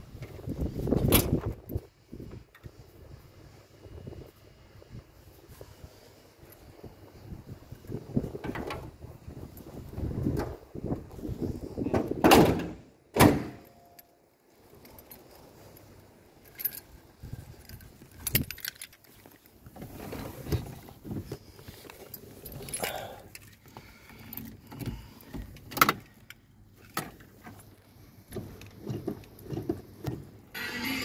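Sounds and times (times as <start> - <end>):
car keys jangling: 16.4 - 19.4, 22.0 - 23.6.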